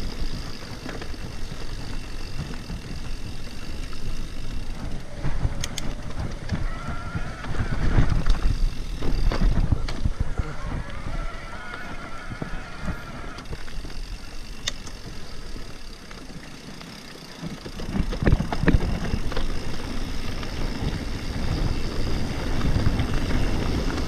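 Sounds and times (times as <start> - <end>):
wind buffeting microphone: 0.0 - 15.9, 17.4 - 24.0
bike rattling: 0.0 - 24.0
bike tyre rolling on dirt: 0.0 - 24.0
bike knocking over bumps: 0.7 - 10.4, 17.3 - 21.0.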